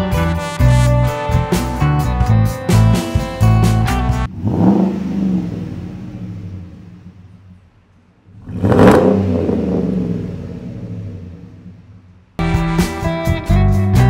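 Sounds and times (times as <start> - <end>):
truck engine revving: 4.2 - 12.4.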